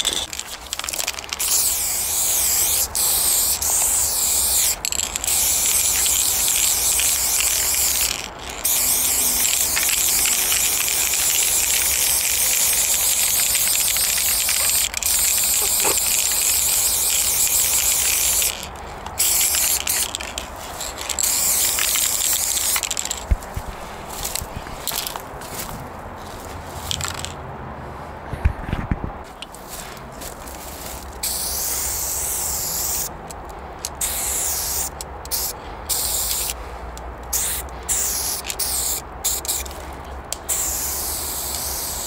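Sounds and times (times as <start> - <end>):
aerosol spray can hissing: 0.0 - 18.6, 19.2 - 23.2, 31.2 - 33.1, 34.0 - 36.6, 37.3 - 39.7, 40.4 - 42.0.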